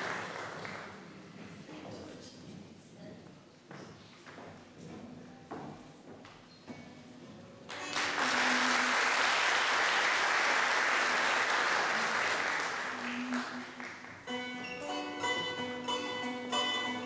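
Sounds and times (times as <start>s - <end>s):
audience applauding: 0.0s - 1.0s, 7.7s - 14.4s
plucked string instruments melody: 7.7s - 8.7s, 13.2s - 17.0s.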